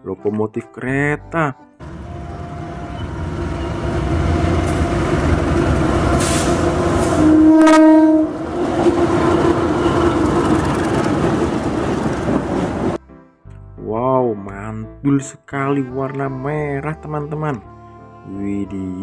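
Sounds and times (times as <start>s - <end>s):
train horn blast: 1.8s - 10.5s
diesel locomotive rumble: 1.8s - 13.0s.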